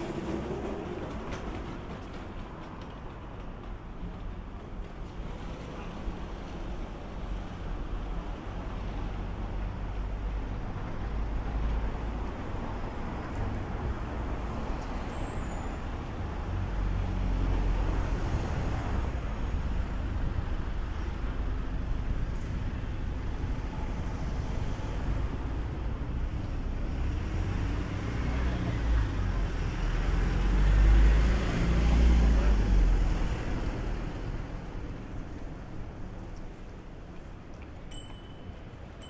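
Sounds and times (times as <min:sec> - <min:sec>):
motor vehicles passing: 0:15.7 - 0:36.1.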